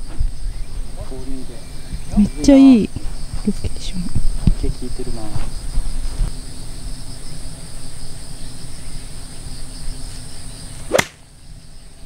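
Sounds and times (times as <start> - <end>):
insect chirring: 0.0 - 12.0
golf club striking ball: 10.9 - 11.2.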